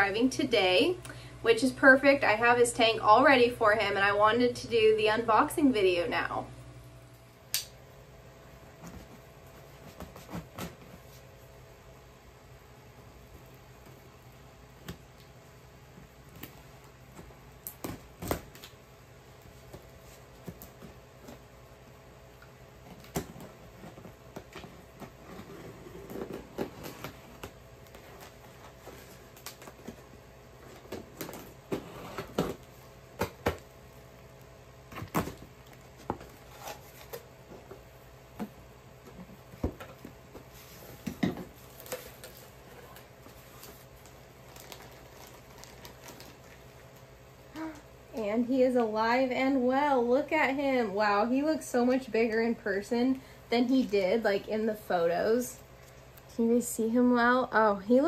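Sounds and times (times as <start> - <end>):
faint steady hum: 0.0 - 58.0
cardboard scrapes and crinkles: 25.1 - 27.4.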